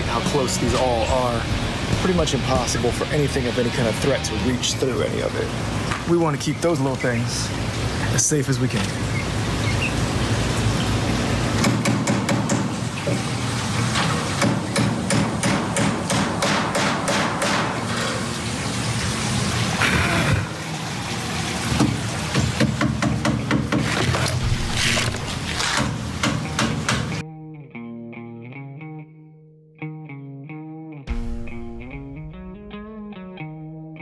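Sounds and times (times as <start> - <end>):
hammer striking nails: 11.6 - 12.7, 14.4 - 17.8, 22.6 - 24.0, 25.8 - 27.2.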